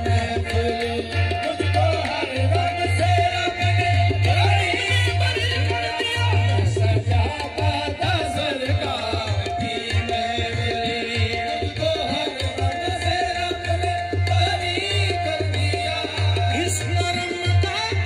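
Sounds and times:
group singing over loudspeaker: 0.0 - 18.0
tabla rhythm with heavy bass: 0.0 - 18.0.

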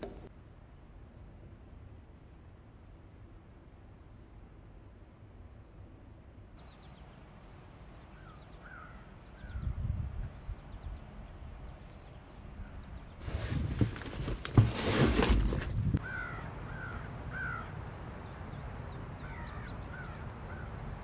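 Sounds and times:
crow cawing: 8.2 - 9.1, 16.0 - 17.8, 19.2 - 20.7
rustling scuffing noise: 13.2 - 16.0.

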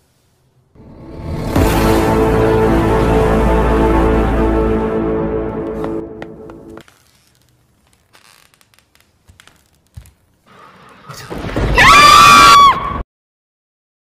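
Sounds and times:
scary background music: 0.8 - 6.8
loud high-pitched scream: 11.8 - 13.0.

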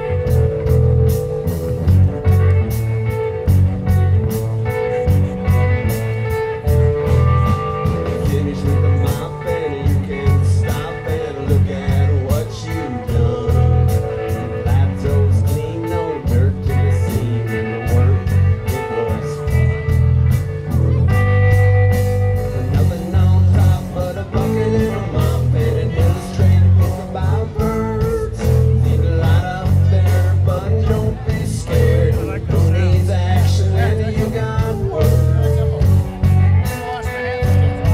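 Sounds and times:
electric bass: 0.0 - 37.9
electric guitar: 0.0 - 37.9
lead vocal singing: 8.0 - 19.8, 22.4 - 35.9.

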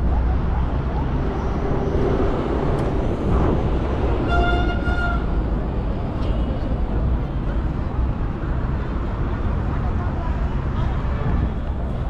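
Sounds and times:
city street traffic: 0.0 - 12.0
vehicle horn: 4.2 - 5.4.

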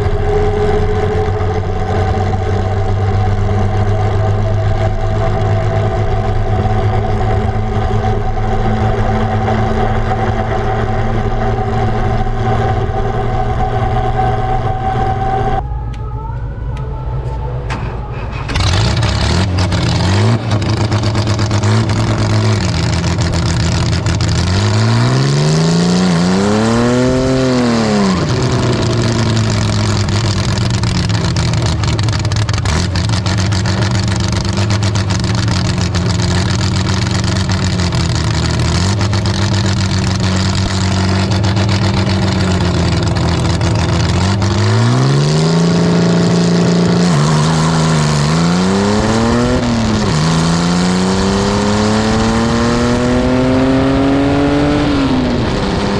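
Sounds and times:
dragster engine revving: 0.0 - 16.0, 16.8 - 55.9.

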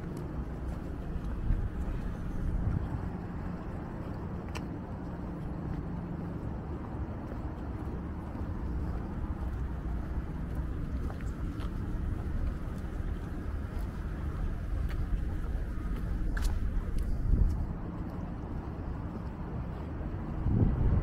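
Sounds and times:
boat engines: 0.0 - 21.0
road traffic rumble: 0.0 - 21.0
faint clicks: 4.0 - 5.2.

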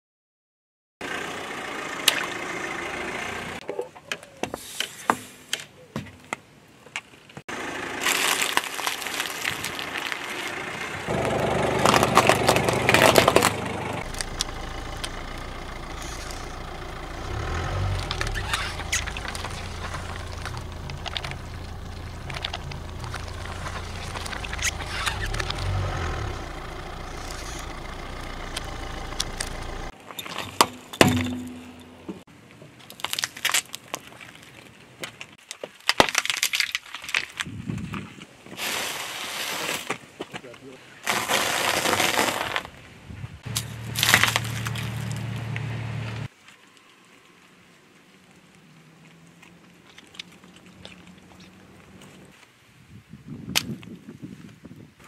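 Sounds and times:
car engine running: 1.0 - 3.6, 7.5 - 32.2, 43.4 - 46.3
tyre crushing tins and plastic: 7.5 - 16.6, 17.2 - 26.5, 27.1 - 32.2, 32.8 - 42.8, 43.5 - 45.4
sharp cracks: 8.0 - 10.5, 11.1 - 16.7.

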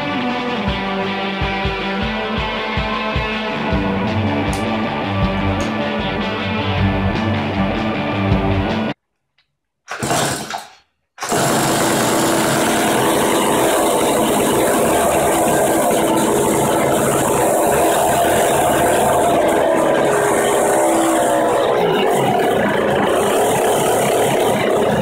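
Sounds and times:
two-stroke chainsaw engine running: 9.9 - 25.0.

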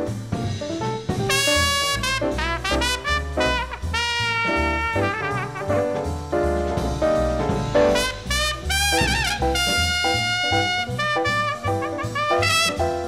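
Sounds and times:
jazz orchestra playing: 0.0 - 13.0
walking bass line: 0.0 - 13.0
trumpet melody: 1.2 - 6.2, 7.7 - 13.0.

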